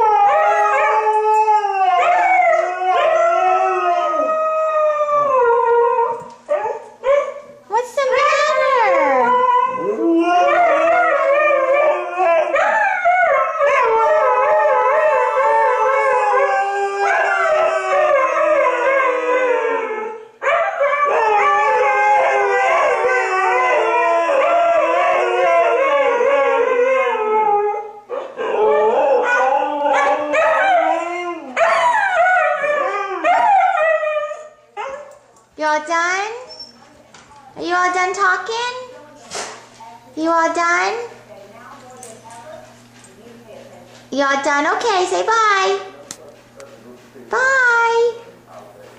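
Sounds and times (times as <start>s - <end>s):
dogs howling: 0.0s - 35.4s.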